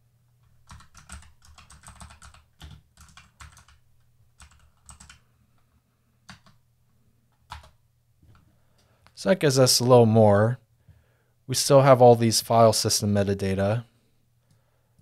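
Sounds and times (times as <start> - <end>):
typing on computer keyboard: 0.5 - 3.8, 4.4 - 5.2, 6.3 - 6.6, 7.4 - 8.4.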